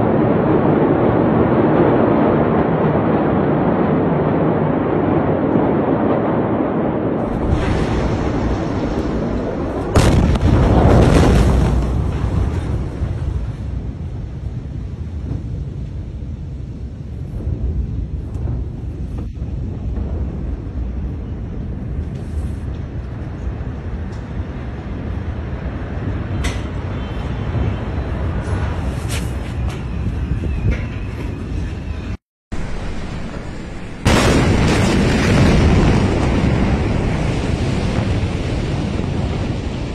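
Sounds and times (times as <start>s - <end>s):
explosion crack: 0.0s - 16.1s, 32.5s - 39.9s
steady low rumble: 0.0s - 26.3s, 27.7s - 39.9s
wind buffeting microphone: 0.0s - 39.9s.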